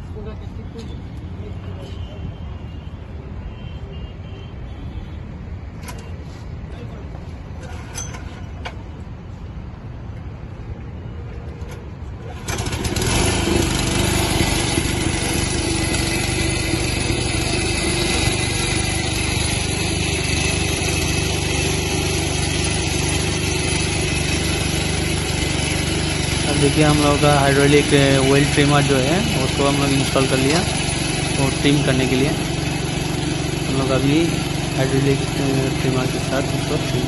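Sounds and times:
small engine running loud: 0:12.3 - 0:37.0.

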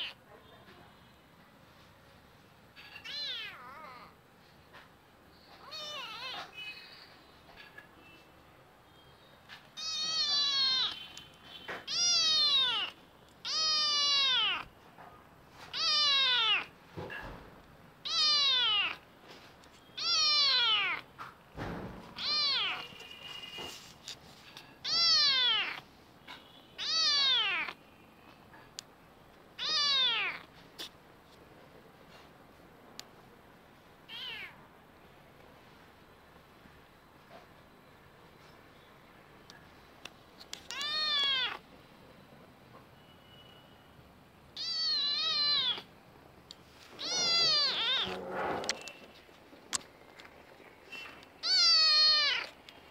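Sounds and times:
kitten meowing: 0:02.9 - 0:04.1, 0:05.6 - 0:06.6, 0:09.8 - 0:11.0, 0:11.8 - 0:14.7, 0:15.7 - 0:16.7, 0:18.0 - 0:19.0, 0:20.0 - 0:21.1, 0:22.2 - 0:23.0, 0:24.8 - 0:25.8, 0:26.8 - 0:27.8, 0:29.6 - 0:30.5, 0:34.1 - 0:34.6, 0:40.7 - 0:41.6, 0:44.6 - 0:45.9, 0:47.0 - 0:48.3, 0:51.4 - 0:52.6.

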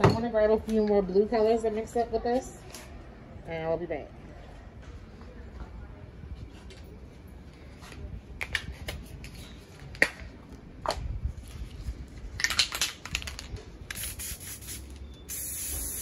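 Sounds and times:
spray cans clicking and knocking: 0:12.4 - 0:14.8
spray can hissing: 0:13.9 - 0:16.0.

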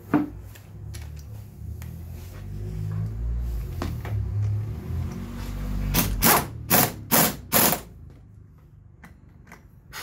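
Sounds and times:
pneumatic impact wrench bursts: 0:05.9 - 0:08.0.

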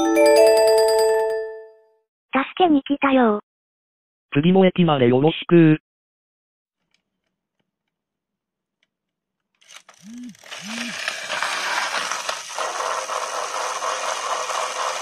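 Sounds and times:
toy train motor whirring: 0:09.5 - 0:15.0.

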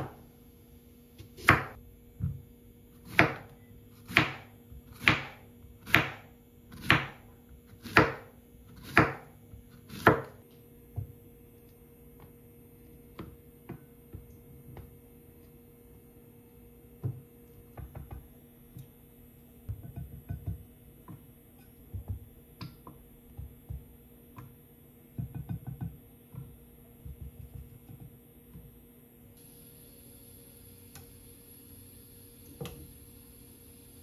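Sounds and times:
faint steady hum: 0:00.0 - 0:34.0.

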